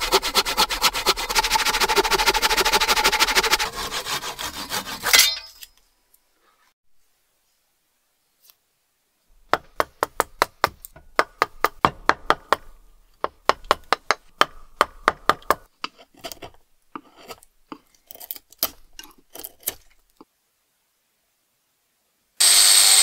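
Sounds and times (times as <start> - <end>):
slow irregular knocks: 9.4 - 17.1.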